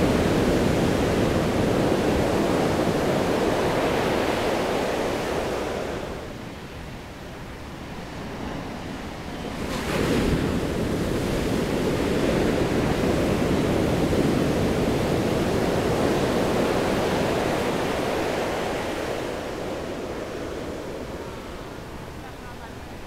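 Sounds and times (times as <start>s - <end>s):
whitewater rushing roar: 0.0s - 6.4s
wave crashing: 9.2s - 23.0s.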